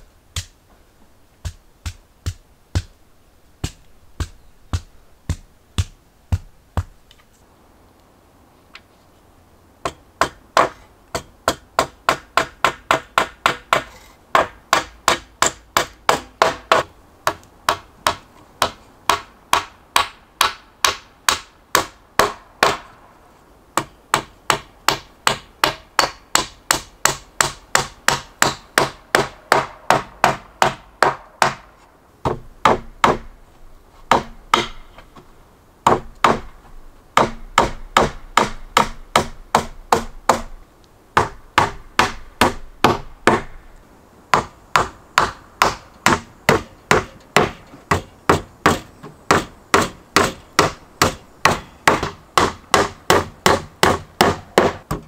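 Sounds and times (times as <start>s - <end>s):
hammer driving nails into wood: 44.4s - 55.0s.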